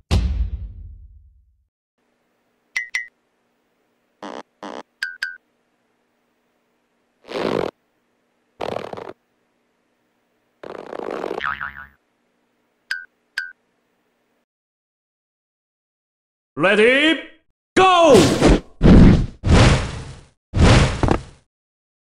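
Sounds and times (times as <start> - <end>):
faint steady hum: 2.0 - 11.0, 11.7 - 14.4.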